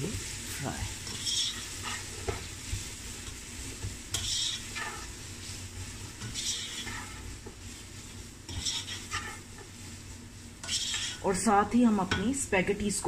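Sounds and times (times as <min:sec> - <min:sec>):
vegetables sizzling in hot oil: 0:00.0 - 0:13.0
spatula scraping a pot: 0:01.0 - 0:11.3.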